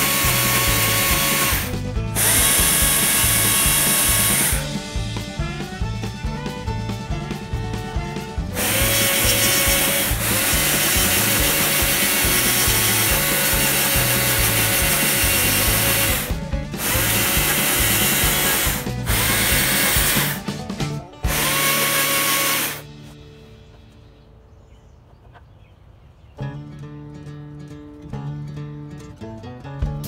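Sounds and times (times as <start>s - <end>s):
electric chainsaw cutting log: 0.0s - 4.9s, 8.4s - 20.6s, 21.2s - 22.9s.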